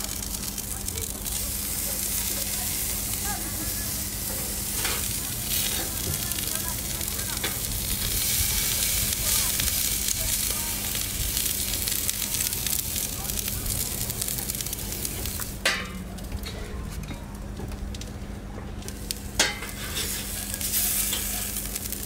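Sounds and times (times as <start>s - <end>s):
steaks sizzling on grill: 0.0s - 15.6s, 18.8s - 22.0s
metal tongs clicking on grate: 19.1s - 21.4s.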